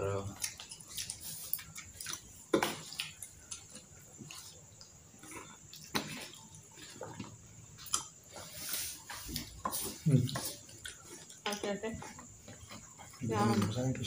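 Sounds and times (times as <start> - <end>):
wet chewing and smacking: 0.0 - 14.0.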